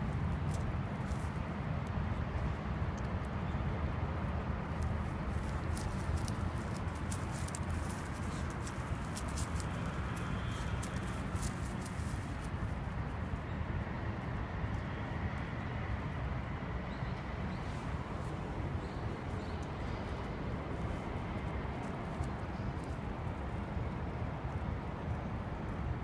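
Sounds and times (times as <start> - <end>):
low outdoor rumble: 0.0 - 14.9
footsteps on dry grass and leaves: 4.8 - 12.7.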